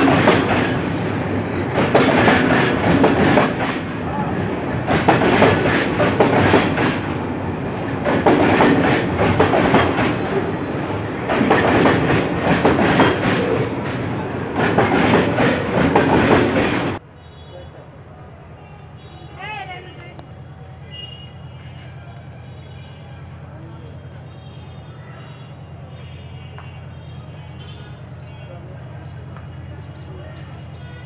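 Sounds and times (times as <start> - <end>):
wheels clattering over rail joints: 0.0 - 17.0
freight train rumble: 0.0 - 17.1, 17.8 - 31.0.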